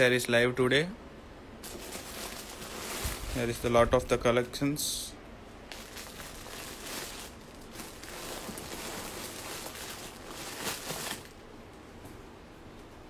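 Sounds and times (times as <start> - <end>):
soft crinkles: 1.6 - 3.7, 5.6 - 11.5
rustling handling noise: 1.6 - 4.2, 5.5 - 12.2.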